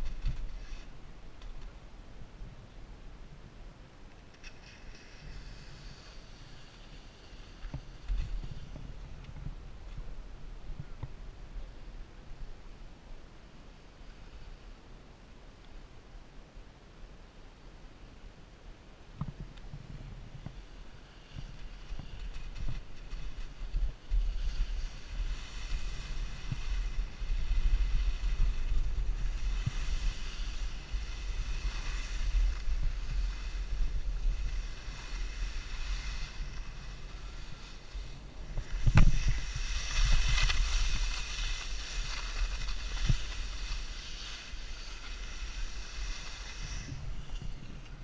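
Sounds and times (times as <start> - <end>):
skis sliding on snow: 0.0 - 2.4, 4.3 - 10.2, 13.7 - 14.7, 19.7 - 48.0
wind buffeting microphone: 19.2 - 48.0.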